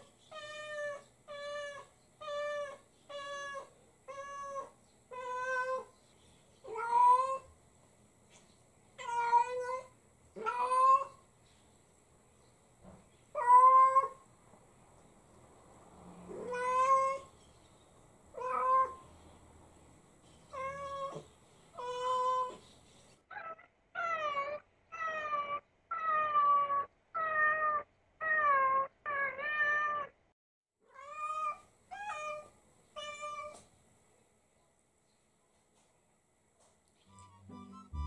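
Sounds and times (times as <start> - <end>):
cat meowing: 0.3 - 5.9, 6.7 - 7.5, 9.0 - 11.2, 13.3 - 14.2, 16.3 - 17.3, 18.4 - 19.0, 20.5 - 22.6, 23.4 - 30.2, 30.9 - 33.6.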